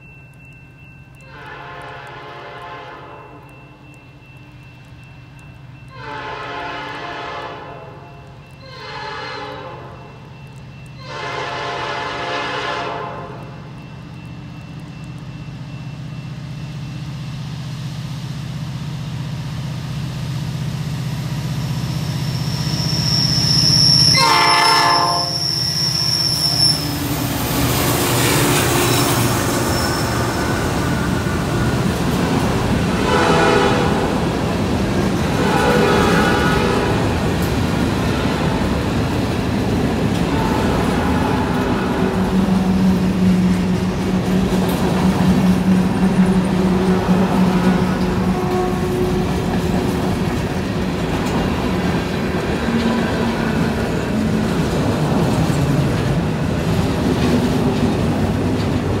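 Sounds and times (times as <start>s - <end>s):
diesel locomotive engines: 0.0s - 59.0s
train horn blasts: 1.3s - 3.4s, 5.9s - 10.1s, 11.0s - 13.6s, 24.0s - 25.5s, 32.9s - 34.2s, 35.3s - 37.2s, 40.3s - 42.8s, 45.4s - 49.7s
freight cars rolling past: 18.8s - 59.0s
wheels squealing on curve: 22.0s - 27.6s, 28.7s - 30.8s.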